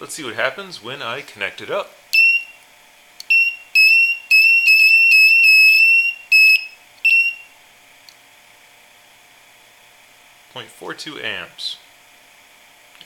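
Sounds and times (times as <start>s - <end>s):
high-pitched buzzer beeps: 2.2s - 2.6s, 3.3s - 7.5s.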